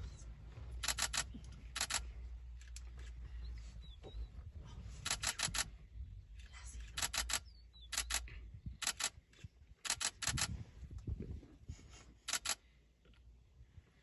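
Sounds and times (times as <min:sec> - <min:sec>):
camera shutter clicks: 0:00.8 - 0:02.0, 0:05.1 - 0:05.7, 0:06.9 - 0:09.2, 0:09.8 - 0:10.5, 0:12.3 - 0:12.6.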